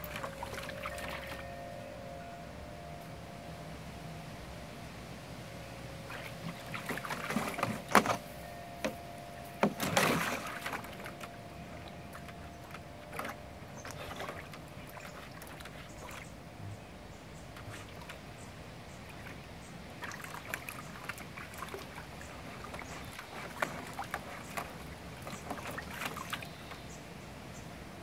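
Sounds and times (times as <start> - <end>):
dog splashing water in pool: 0.0 - 1.5, 6.0 - 16.6, 17.5 - 18.4, 19.0 - 26.9.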